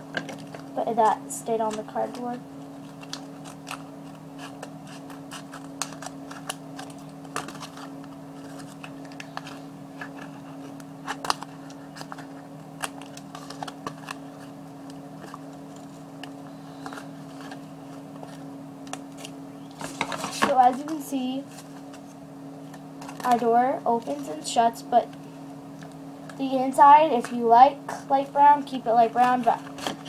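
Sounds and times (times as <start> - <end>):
steady low hum: 0.0 - 30.0
cardboard and paper handling: 1.6 - 14.5, 15.2 - 22.1.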